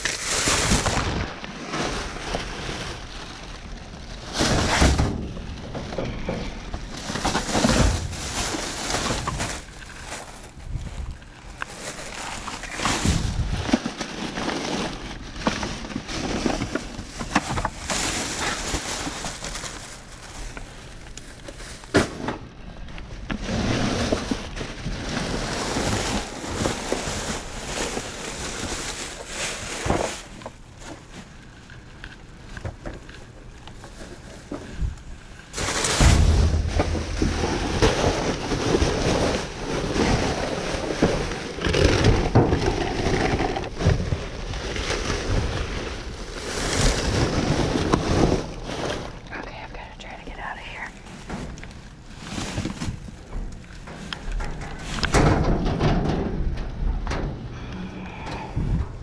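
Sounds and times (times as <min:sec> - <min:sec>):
plastic bags rustling: 0:00.0 - 0:59.0
heavy low bumps: 0:35.6 - 0:49.3.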